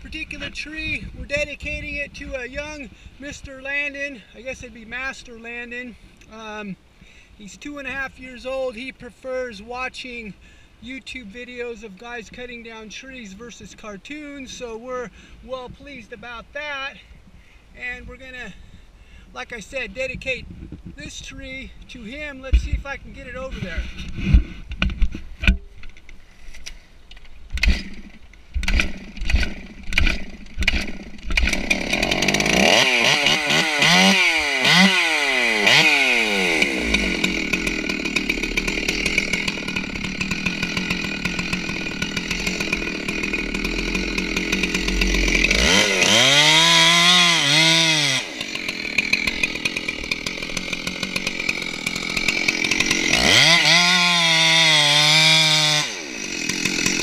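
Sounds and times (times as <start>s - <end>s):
chainsaw revving and cutting: 27.6s - 57.0s.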